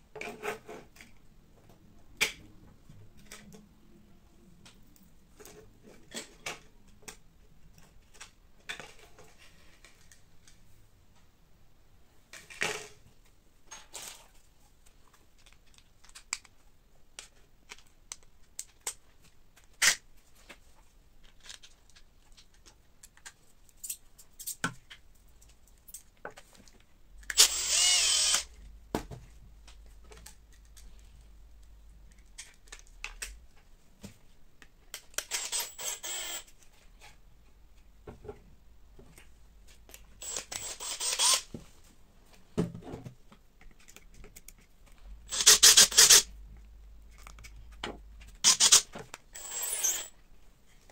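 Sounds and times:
cordless drill whirring: 27.3s - 28.5s, 35.3s - 36.4s, 40.2s - 41.5s, 45.3s - 46.3s, 48.4s - 50.1s.

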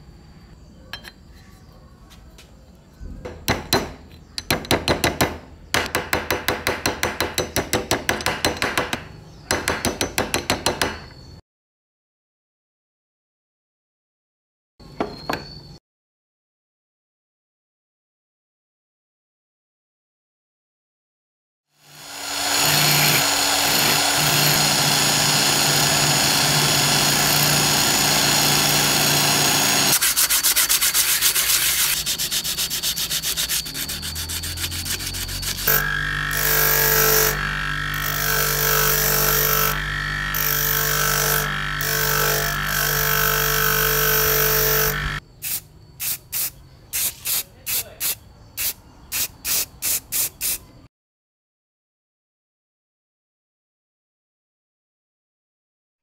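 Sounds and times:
bench grinder wire wheel whine: 21.8s - 45.2s
rotary tool wire brush scouring metal: 22.2s - 38.2s
spray can bursts: 29.9s - 35.7s, 45.4s - 50.6s.

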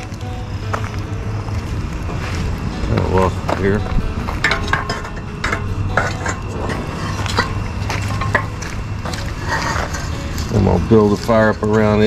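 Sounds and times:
cast iron pots clanking: 0.0s - 12.0s.

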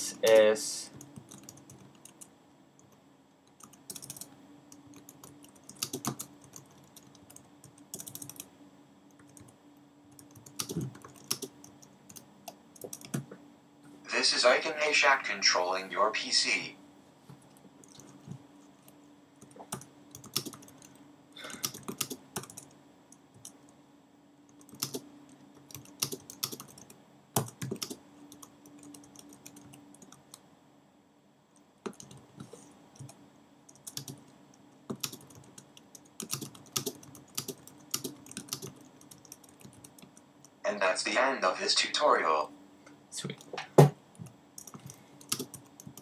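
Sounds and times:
computer keyboard typing: 0.3s - 8.5s, 9.1s - 13.3s, 17.8s - 22.8s, 24.5s - 30.4s, 31.8s - 32.4s, 33.0s - 40.6s, 44.2s - 46.0s.

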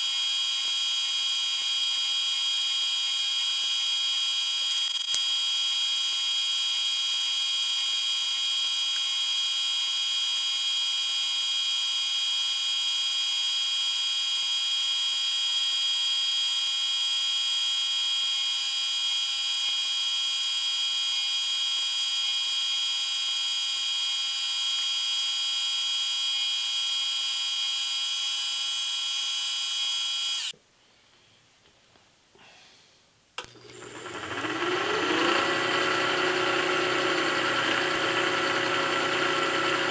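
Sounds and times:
click: 33.4s - 33.8s
machine starting up: 33.4s - 39.9s
milling machine cutting metal: 33.4s - 39.9s.

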